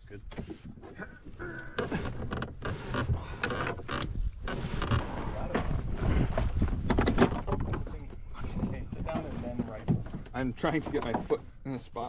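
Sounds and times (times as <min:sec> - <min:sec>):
loose fitting knocking and creaking: 0:00.3 - 0:12.0
wind rumble on microphone: 0:04.0 - 0:10.1.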